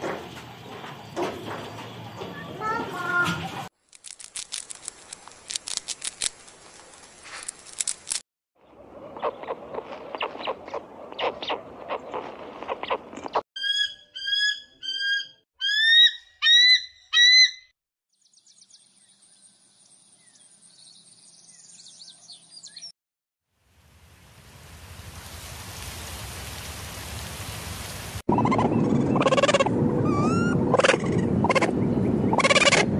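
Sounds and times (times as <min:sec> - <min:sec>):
bird whistled calls: 0:28.4 - 0:31.2.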